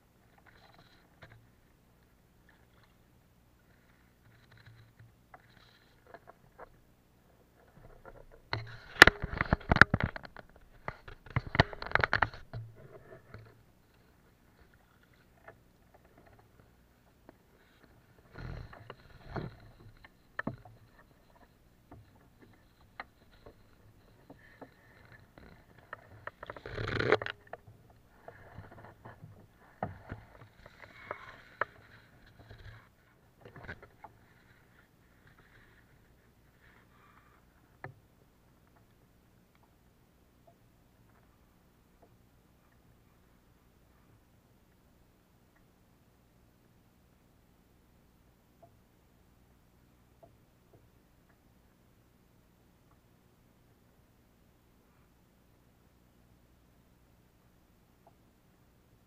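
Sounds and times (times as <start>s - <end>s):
knocks and clicks of fishing rod: 8.0s - 13.5s.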